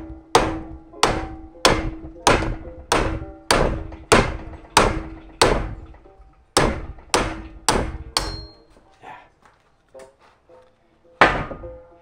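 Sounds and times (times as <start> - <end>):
hammer striking metal: 0.0 - 8.8, 11.2 - 11.9
metallic ring: 7.5 - 8.7.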